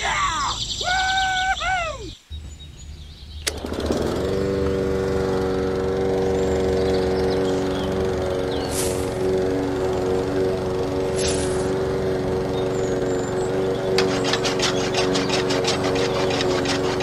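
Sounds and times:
small electric motor whirring: 11.0 - 17.0.

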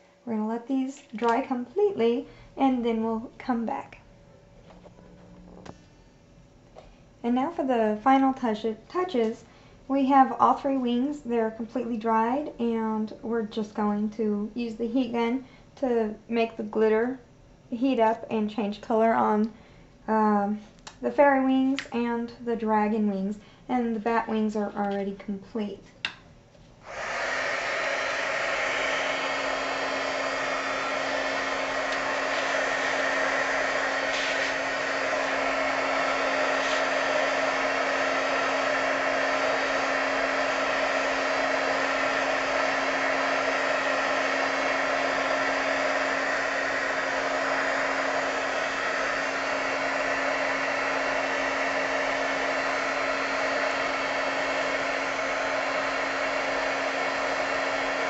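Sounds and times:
heat gun fan blowing: 26.8 - 58.0.

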